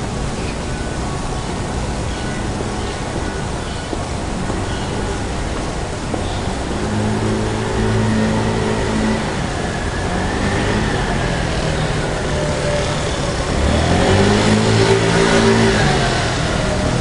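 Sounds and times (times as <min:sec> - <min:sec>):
street noise hiss: 0:00.0 - 0:17.0
vehicle engine running: 0:04.4 - 0:17.0.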